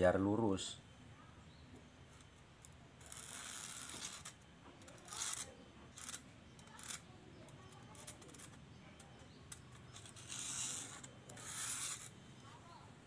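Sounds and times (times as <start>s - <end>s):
scratchy strokes on coconut shell: 3.0s - 12.8s.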